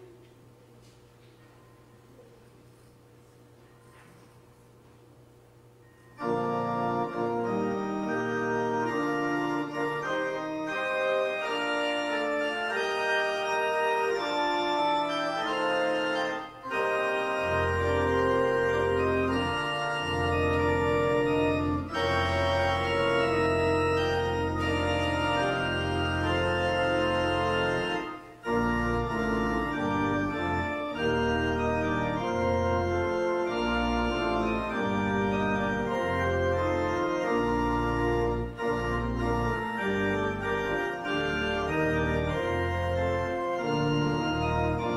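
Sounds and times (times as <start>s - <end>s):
church organ chords: 5.5s - 44.9s
deep organ bass notes: 6.1s - 44.9s.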